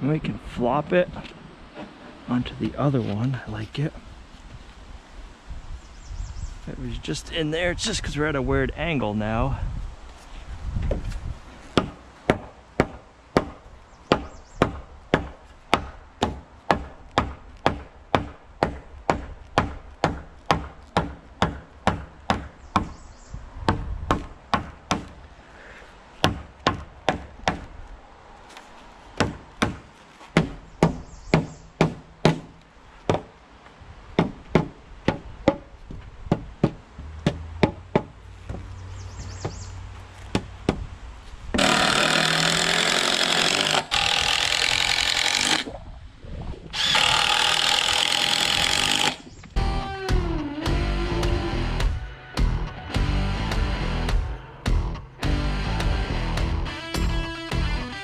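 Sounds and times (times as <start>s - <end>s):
hammer striking timber: 11.8s - 23.0s, 23.7s - 25.2s, 26.2s - 27.7s, 29.2s - 29.8s, 30.4s - 33.3s, 34.2s - 35.7s, 36.3s - 38.1s, 41.6s - 45.6s.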